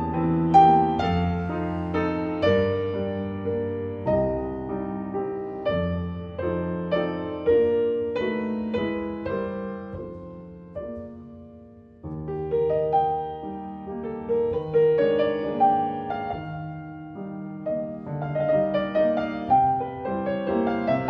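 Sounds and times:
soft slow piano music: 0.0 - 21.0.

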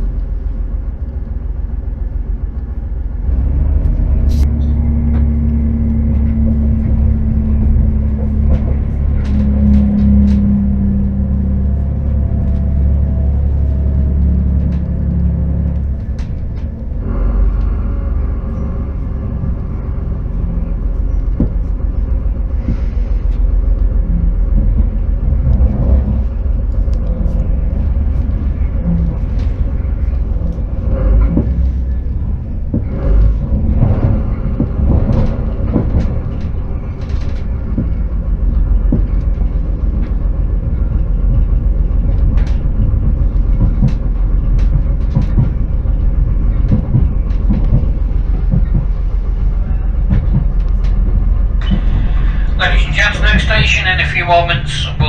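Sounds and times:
train wheels rumbling on rail: 0.0 - 55.0
track clicks and knocks: 3.2 - 17.8, 18.6 - 55.0.

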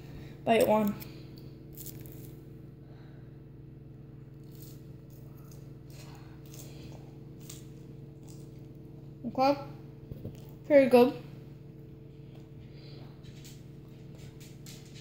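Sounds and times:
low electrical hum: 0.0 - 15.0
person chewing crunchy food: 0.6 - 2.5, 4.2 - 9.2.

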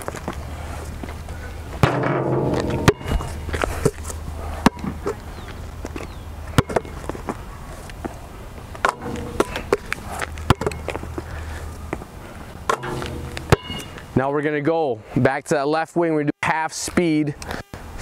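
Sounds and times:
basketball bouncing on asphalt: 1.8 - 7.4, 8.7 - 11.3, 11.9 - 14.1.

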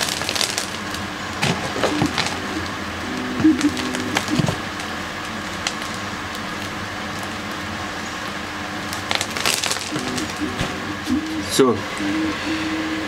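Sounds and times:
gritty substrate crackling: 0.0 - 2.5, 3.2 - 10.6
background hum: 0.0 - 13.0.

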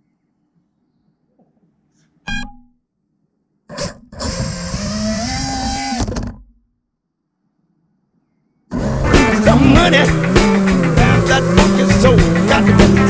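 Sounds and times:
drone motors whining: 3.7 - 6.5.

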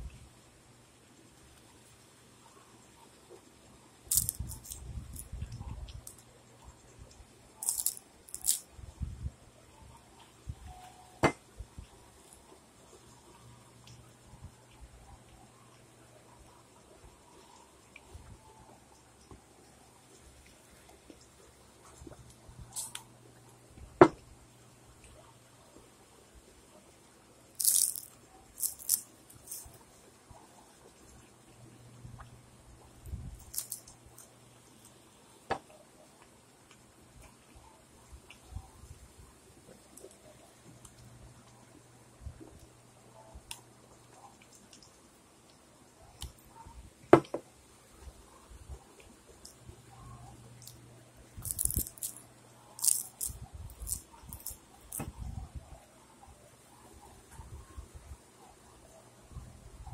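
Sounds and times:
crunchy bites and chewing: 4.1 - 6.8, 7.6 - 8.7, 21.8 - 23.1, 27.6 - 29.8, 33.0 - 35.0, 49.4 - 55.2.

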